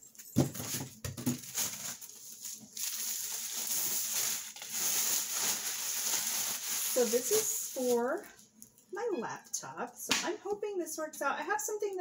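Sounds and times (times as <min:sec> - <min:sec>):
packaging rustling: 0:00.4 - 0:08.5.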